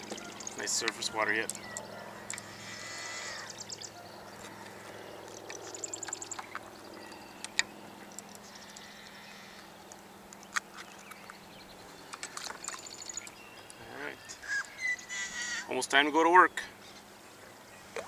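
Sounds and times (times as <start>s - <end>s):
high bird trill: 0.0s - 4.5s, 10.9s - 15.8s
birds calling: 0.0s - 18.0s.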